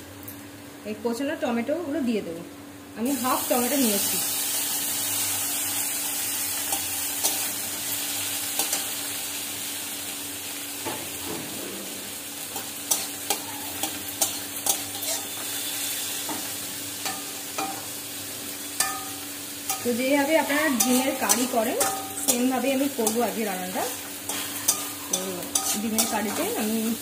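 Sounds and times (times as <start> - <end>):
vegetables sizzling in hot oil: 3.0 - 27.0
metal spatula scraping and tapping pan: 18.8 - 20.0, 20.8 - 23.4, 24.0 - 26.6.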